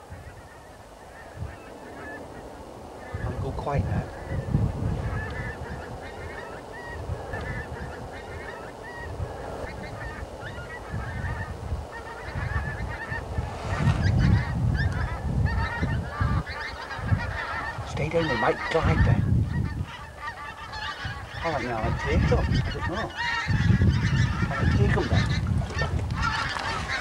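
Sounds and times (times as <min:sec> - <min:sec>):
geese honking: 0:00.0 - 0:27.0
wind buffeting microphone: 0:00.0 - 0:27.0.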